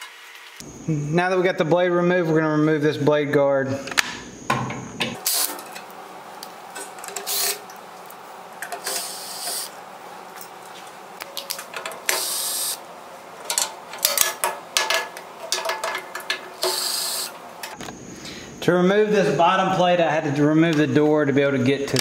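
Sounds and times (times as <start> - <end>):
cordless drill running: 8.8 - 9.7, 12.1 - 12.8, 16.6 - 17.4
metal parts clicking and knocking: 11.3 - 12.3, 13.4 - 17.8.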